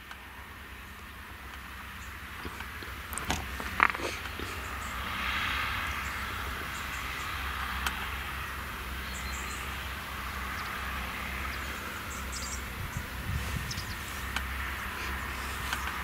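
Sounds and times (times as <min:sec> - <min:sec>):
tractor engine under load: 0:00.0 - 0:16.0.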